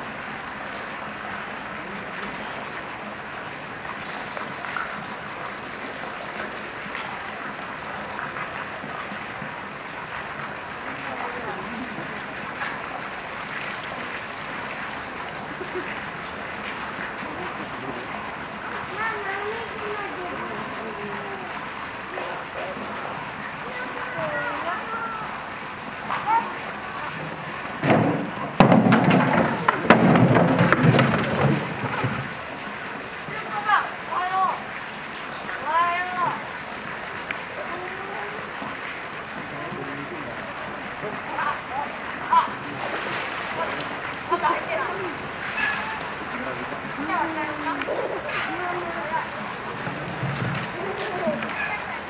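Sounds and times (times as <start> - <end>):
steady background hiss: 0.0 - 52.0
small bird chirping: 4.0 - 6.8
sharp knocks: 27.8 - 32.3
plastic can thudding on concrete: 27.8 - 32.4.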